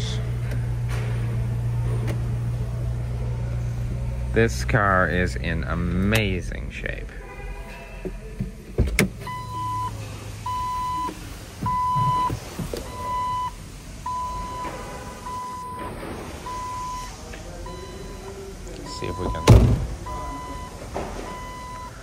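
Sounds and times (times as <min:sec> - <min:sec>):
car warning chime beeping: 0:09.3 - 0:22.0.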